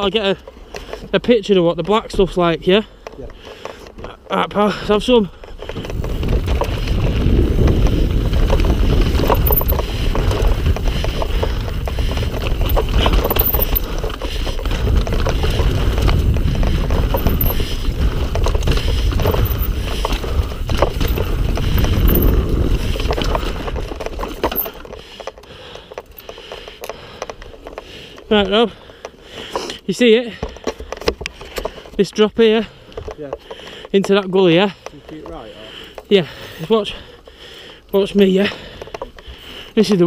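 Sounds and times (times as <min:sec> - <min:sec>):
bike knocks and rattles: 0:00.0 - 0:29.2
rumble of wind and tyres: 0:00.0 - 0:40.0.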